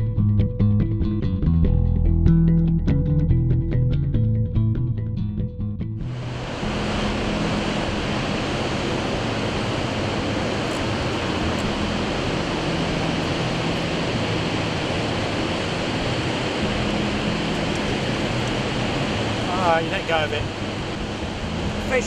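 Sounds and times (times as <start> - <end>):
low hum: 0.0 - 22.0
water rushing over weir: 6.1 - 22.0.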